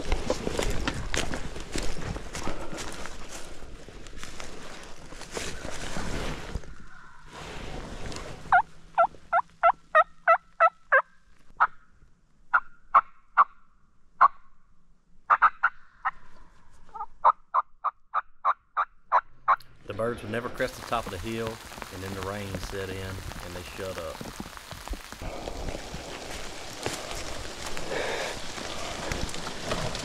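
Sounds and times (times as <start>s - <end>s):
wild turkey yelping: 8.5s - 11.8s, 15.3s - 16.0s
rustling: 20.6s - 30.0s.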